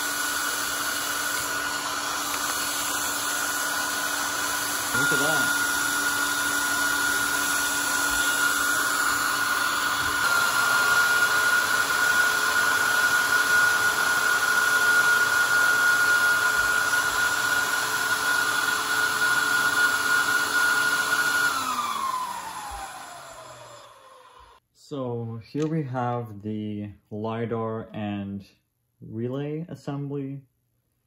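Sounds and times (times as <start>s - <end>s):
hand dryer fan whining: 0.0s - 24.6s.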